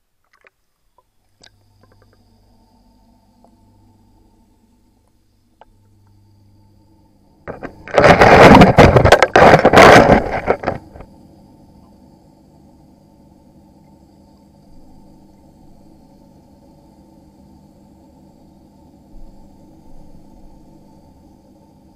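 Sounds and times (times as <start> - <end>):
steady low hum: 0.0 - 21.9
rough noise with knocks and crackle: 7.4 - 11.1.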